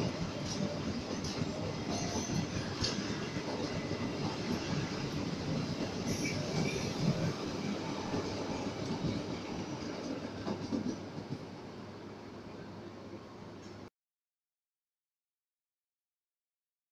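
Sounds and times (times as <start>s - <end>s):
train wheels rumbling on rails: 0.0s - 12.0s
high wheel squeal: 6.0s - 7.2s.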